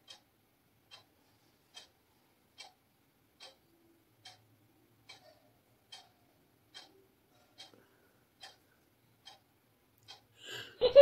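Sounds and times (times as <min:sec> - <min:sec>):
clock ticking: 0:00.0 - 0:01.1, 0:01.7 - 0:10.3.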